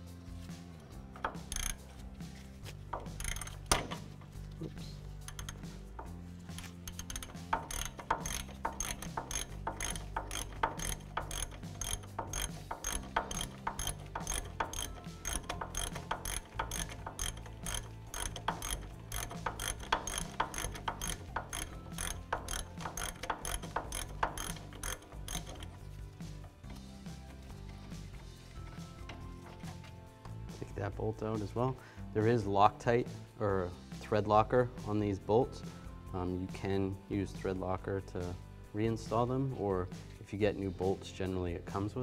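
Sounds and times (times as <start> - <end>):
ratchet clicking: 1.0 - 4.6, 5.2 - 29.9.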